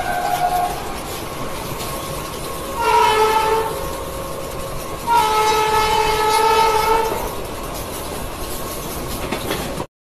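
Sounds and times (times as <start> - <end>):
train horn blasts: 0.0 - 0.9, 2.8 - 4.0, 5.0 - 7.3
moving train rumble: 0.0 - 9.9.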